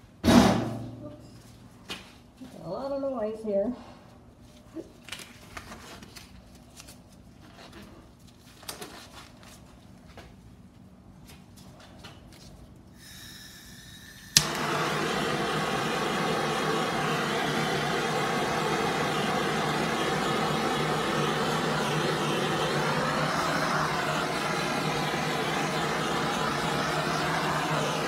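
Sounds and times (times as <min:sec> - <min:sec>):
gas hissing: 0:13.0 - 0:28.0
torch flame hissing: 0:13.0 - 0:28.0.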